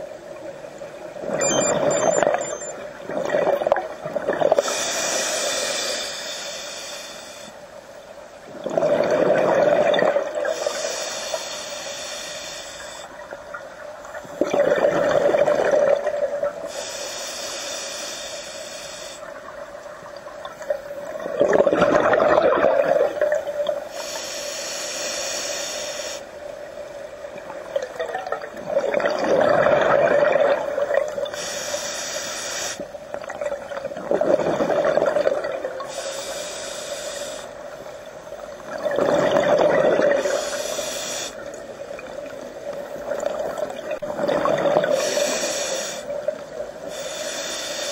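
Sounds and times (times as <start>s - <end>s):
regulator hissing inhale: 4.6s - 7.6s, 10.5s - 13.1s, 16.7s - 19.3s, 23.9s - 26.3s, 31.3s - 32.9s, 35.9s - 37.6s, 40.2s - 41.5s, 44.9s - 46.2s, 46.8s - 47.9s
exhaled bubbles: 8.5s - 10.6s, 14.3s - 16.6s, 20.6s - 23.8s, 27.6s - 31.3s, 33.2s - 35.9s, 38.6s - 40.5s, 41.9s - 45.3s.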